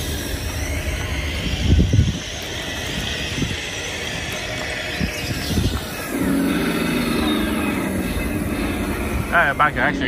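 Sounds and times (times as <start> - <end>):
toy wheels rolling on asphalt: 0.0 - 10.0.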